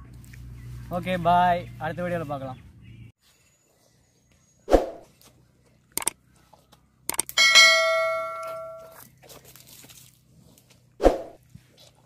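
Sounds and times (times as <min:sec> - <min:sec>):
quick clicks: 0:05.9 - 0:06.2, 0:07.1 - 0:07.4
bright bell ding: 0:07.4 - 0:09.0.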